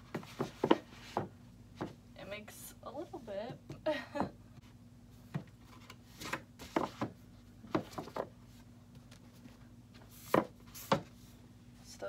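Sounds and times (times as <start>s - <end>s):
books scraping on a shelf: 0.0s - 2.0s, 5.2s - 11.4s.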